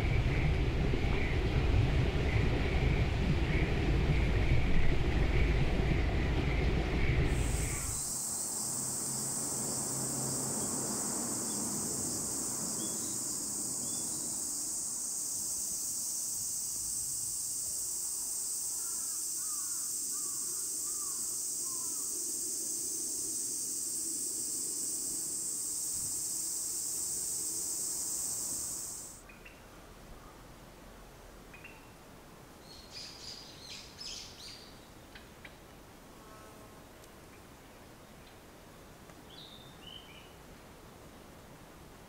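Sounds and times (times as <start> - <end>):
insects chorus: 0.0 - 29.3.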